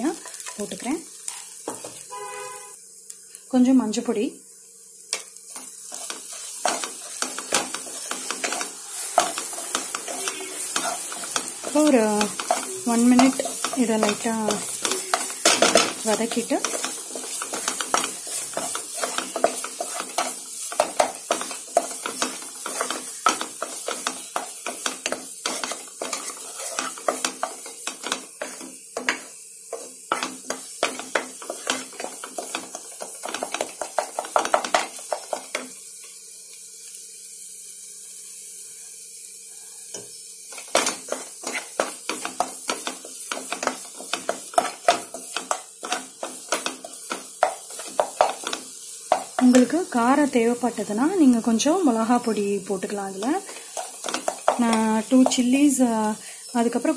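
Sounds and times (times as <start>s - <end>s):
faint sizzle: 0.0s - 56.9s
spatula scraping a pan: 5.5s - 35.5s, 40.5s - 49.8s, 53.1s - 55.5s.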